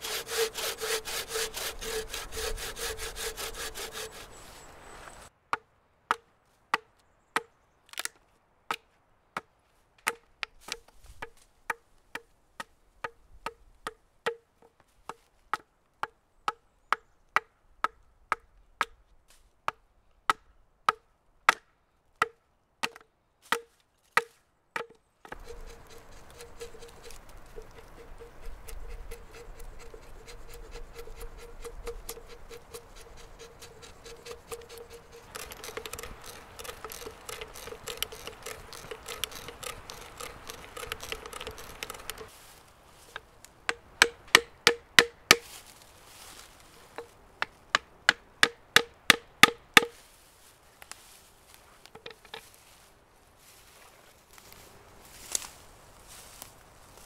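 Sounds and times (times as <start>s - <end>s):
hatchet tapping wooden pegs: 0.0s - 4.3s, 5.5s - 8.1s, 9.4s - 19.0s, 19.7s - 42.3s, 43.1s - 45.5s, 46.9s - 50.0s
hatchet chopping wood: 0.0s - 4.4s, 5.5s - 8.1s, 9.4s - 14.4s, 15.1s - 19.0s, 19.7s - 42.3s, 43.1s - 45.6s, 46.9s - 50.0s
brace and bit boring wood: 0.0s - 4.6s, 25.3s - 42.3s, 43.1s - 45.4s, 46.9s - 49.9s.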